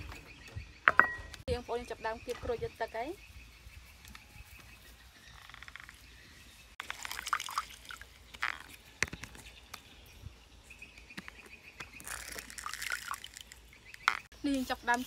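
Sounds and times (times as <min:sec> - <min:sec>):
juice dripping into a bowl: 0:06.8 - 0:08.7, 0:12.0 - 0:13.6
wet squelching of limes: 0:06.8 - 0:08.8, 0:11.9 - 0:14.3.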